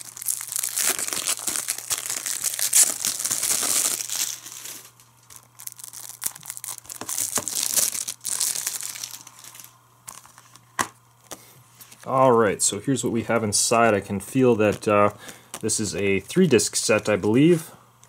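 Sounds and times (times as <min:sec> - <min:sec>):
plastic shrink-wrap crinkling: 0:00.0 - 0:10.6, 0:14.0 - 0:17.3.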